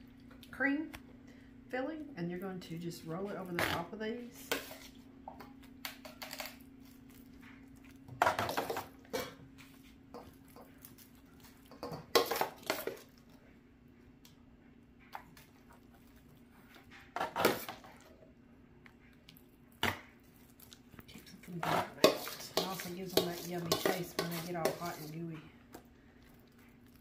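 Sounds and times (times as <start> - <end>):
metal spoon scraping steel bowl: 21.6 - 25.3.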